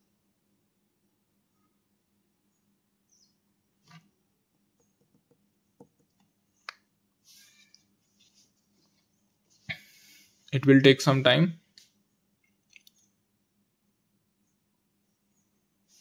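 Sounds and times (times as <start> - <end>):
faint clicks and taps: 3.8 - 6.9.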